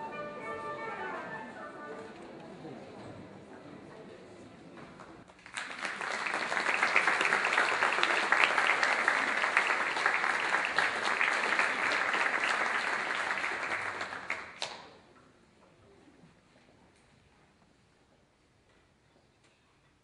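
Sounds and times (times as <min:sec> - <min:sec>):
audience applauding: 0:05.3 - 0:14.8.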